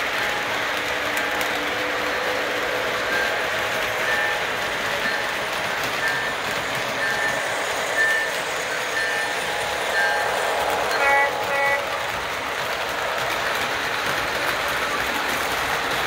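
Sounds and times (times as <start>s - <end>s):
model train rumbling on track: 0.0s - 16.0s
locomotive horn toots: 10.9s - 12.0s.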